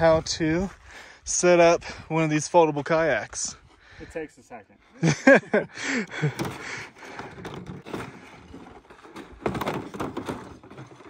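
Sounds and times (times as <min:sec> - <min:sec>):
plastic kayak hull scraping and rustling: 0:06.0 - 0:11.0.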